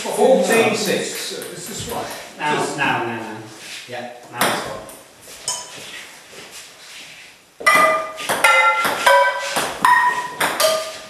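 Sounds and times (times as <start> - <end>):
ball hitting frying pans: 4.3 - 5.8, 7.6 - 11.0.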